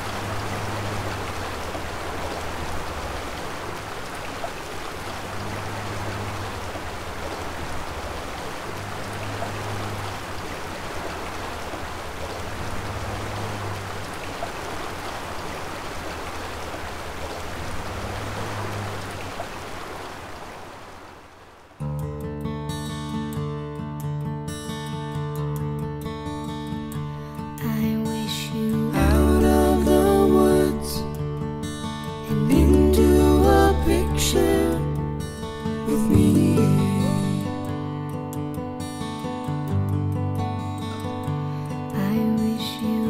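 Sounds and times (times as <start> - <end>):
running water rushing: 0.0 - 21.8.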